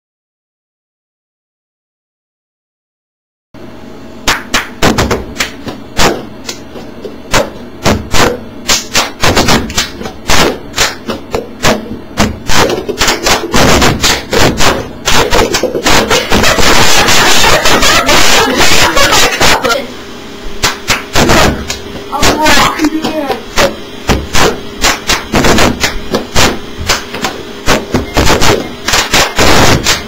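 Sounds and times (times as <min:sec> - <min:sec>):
hand claps: 0:04.2 - 0:06.7, 0:08.1 - 0:11.8, 0:12.5 - 0:19.1, 0:20.6 - 0:21.9, 0:24.3 - 0:30.0
paper cups knocking on table: 0:09.1 - 0:19.6.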